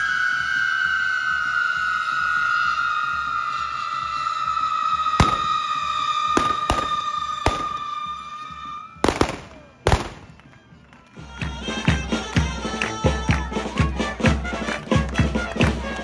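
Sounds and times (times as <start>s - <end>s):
firecracker bangs: 5.2s - 8.1s, 9.0s - 10.4s
firecrackers cracking: 5.2s - 8.1s, 9.0s - 10.6s.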